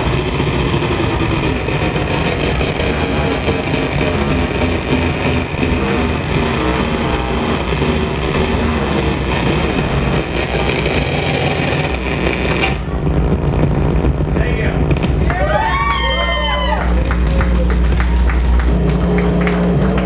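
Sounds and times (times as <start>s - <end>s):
low droning experimental music: 0.0s - 20.0s.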